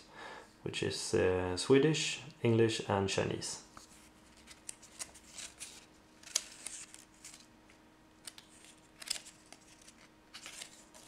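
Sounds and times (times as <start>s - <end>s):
paper pages turning: 3.8s - 11.0s.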